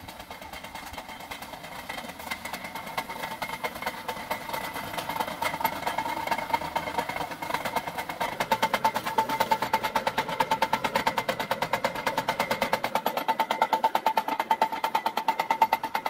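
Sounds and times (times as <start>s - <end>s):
generator rig whining: 0.0s - 16.0s
rapid mechanical ticking: 0.0s - 16.0s.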